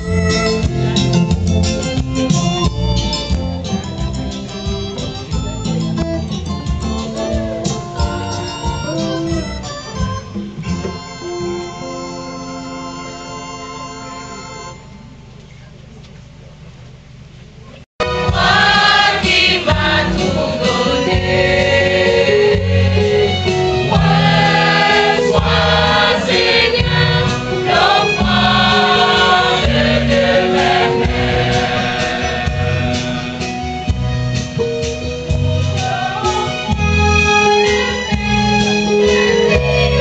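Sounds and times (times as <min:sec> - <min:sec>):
choir singing a hymn: 0:18.0 - 0:40.0.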